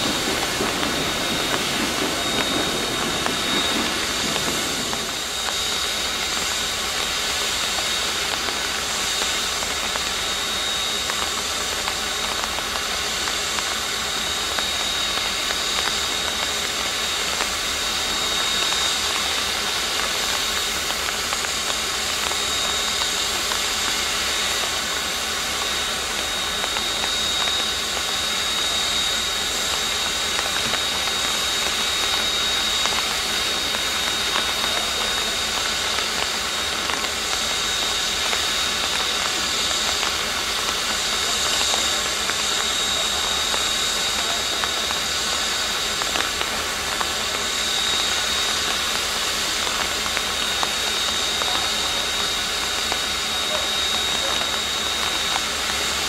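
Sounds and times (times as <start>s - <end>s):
steam hissing: 0.0s - 56.0s.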